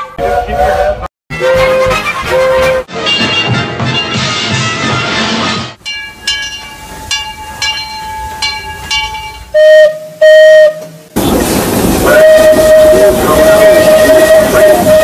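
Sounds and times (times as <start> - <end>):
steam locomotive bell ringing: 5.8 - 10.0
steam whistle blasts: 12.1 - 15.0.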